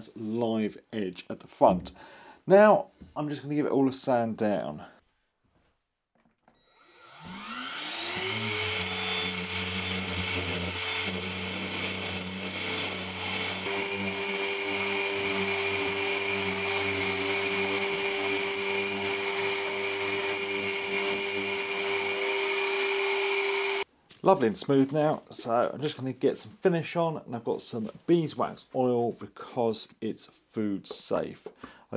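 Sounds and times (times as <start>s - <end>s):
orbital sander whining: 6.7s - 23.9s.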